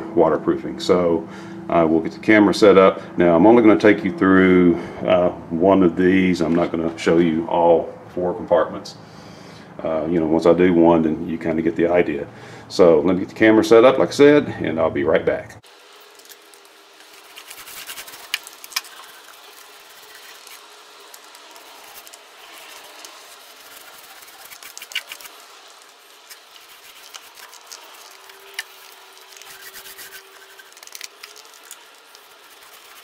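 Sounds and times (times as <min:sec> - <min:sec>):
faint steady hum: 0:00.0 - 0:33.0
hands rubbing and scratching: 0:16.0 - 0:33.0.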